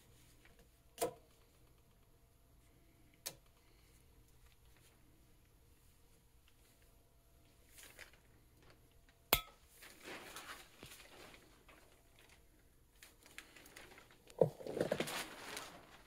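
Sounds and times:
rustling: 9.7s - 16.0s.

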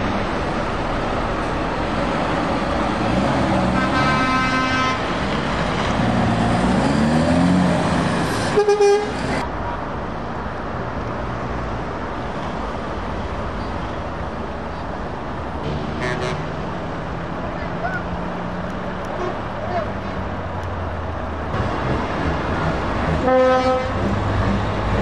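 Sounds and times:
diesel lorry engines revving: 0.0s - 25.0s
truck horn blasts: 3.6s - 5.1s, 8.5s - 9.4s, 15.9s - 16.6s, 23.2s - 24.1s.

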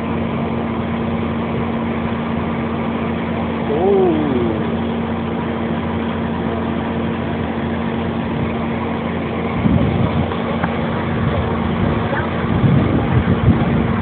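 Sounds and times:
truck engines droning: 0.0s - 14.0s.

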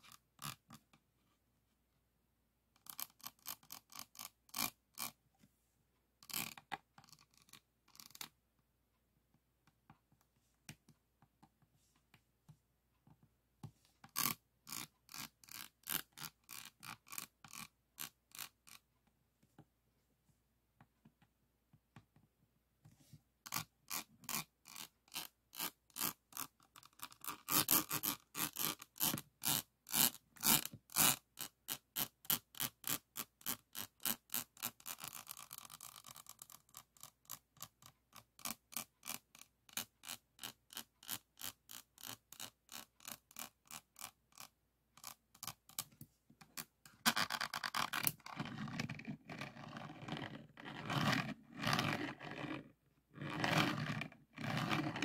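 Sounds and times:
pen scraping over canvas: 47.1s - 55.0s.

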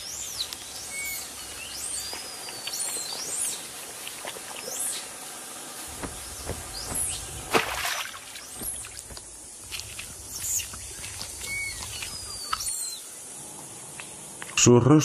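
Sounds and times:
high bird chirps: 6.0s - 7.5s, 10.0s - 13.0s.

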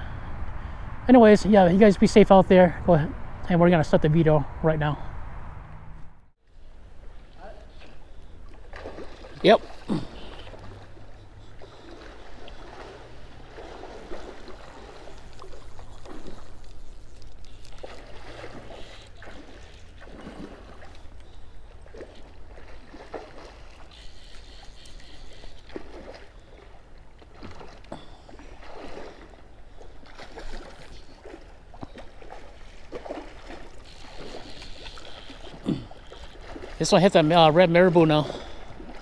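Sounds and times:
fish splashing in water: 7.8s - 36.9s.

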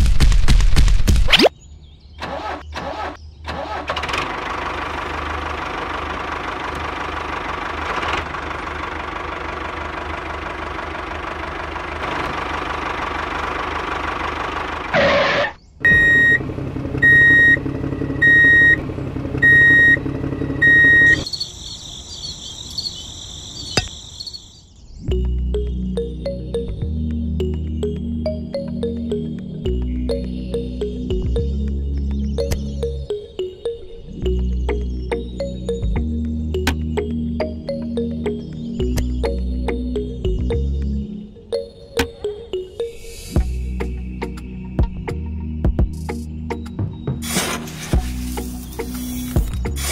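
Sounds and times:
lower engine sound: 2.1s - 21.3s, 25.1s - 49.9s
small tractor engine running: 2.2s - 21.3s, 47.2s - 49.9s.

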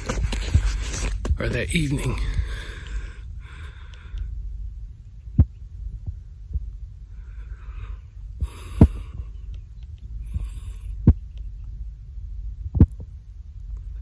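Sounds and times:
wind rumble on microphone: 0.0s - 14.0s
soft breaths: 2.0s - 4.6s, 7.0s - 11.6s.

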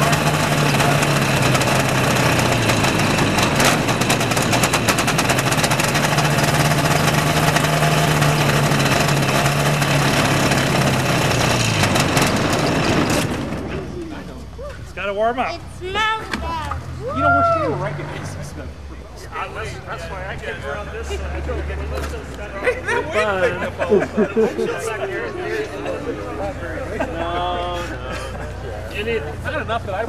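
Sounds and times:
small airplane engine running: 0.0s - 13.8s.

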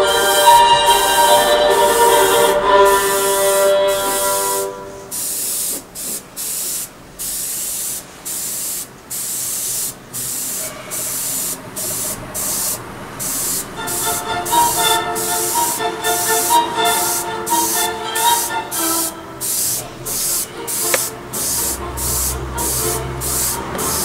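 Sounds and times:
music: 0.0s - 4.9s, 13.8s - 19.5s, 20.4s - 24.0s
airbrush spraying hiss: 0.0s - 24.0s.

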